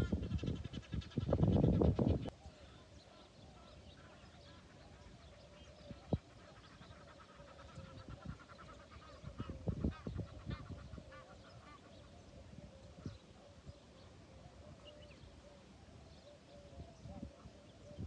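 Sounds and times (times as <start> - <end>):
waterfowl honking: 6.2 - 12.1.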